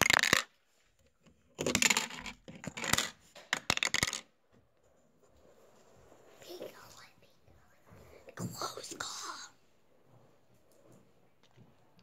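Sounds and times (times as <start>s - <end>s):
plastic bricks clattering: 0.0s - 0.6s, 1.5s - 4.3s.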